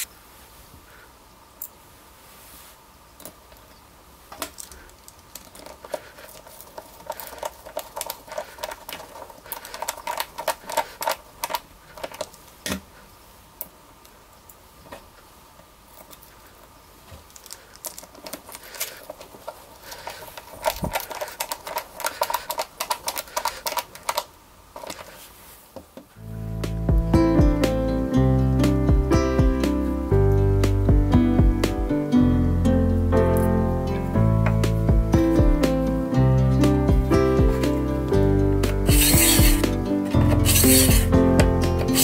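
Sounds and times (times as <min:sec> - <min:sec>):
cordless drill driving screws: 0:38.9 - 0:39.6, 0:40.3 - 0:41.1.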